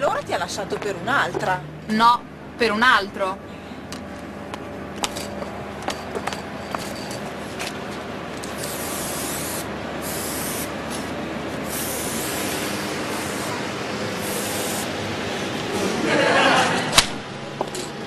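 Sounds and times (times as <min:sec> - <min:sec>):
spray can hissing: 0:08.6 - 0:10.7, 0:11.7 - 0:13.6, 0:14.2 - 0:14.9.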